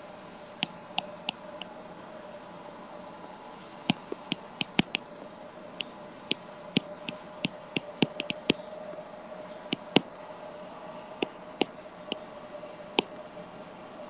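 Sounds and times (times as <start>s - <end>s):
faint steady hum: 0.0s - 14.0s
stylus tapping on tablet screen: 3.9s - 5.0s, 6.8s - 8.6s, 9.7s - 10.0s.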